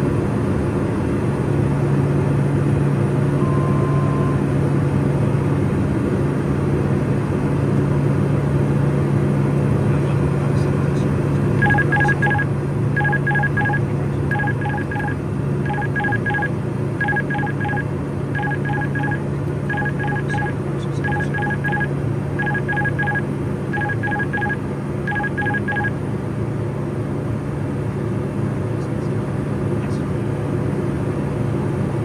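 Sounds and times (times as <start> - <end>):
turboprop engine drone: 0.0 - 32.0
cockpit alert beeps: 11.6 - 17.8, 18.4 - 23.2, 23.8 - 25.9.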